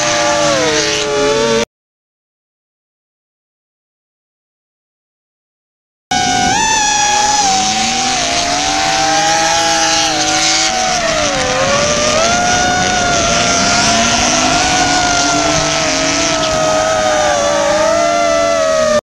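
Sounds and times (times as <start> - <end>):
drone motors whining: 0.0 - 1.6, 6.1 - 19.0
car engines revving: 0.0 - 1.7, 6.1 - 19.0.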